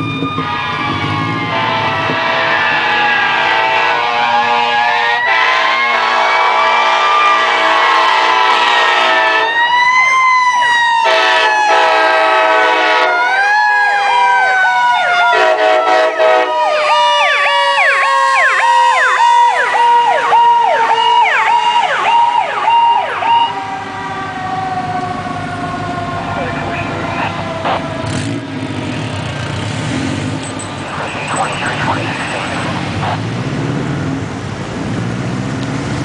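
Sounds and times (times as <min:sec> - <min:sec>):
electronic siren yelping: 0:00.0 - 0:28.4, 0:30.5 - 0:33.3
air horn blasts: 0:01.5 - 0:09.6, 0:11.0 - 0:13.2, 0:15.3 - 0:16.6.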